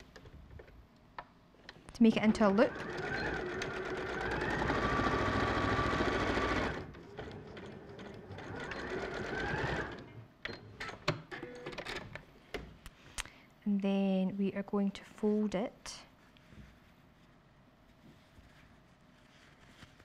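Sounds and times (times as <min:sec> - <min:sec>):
sewing machine stitching: 0:02.1 - 0:10.2.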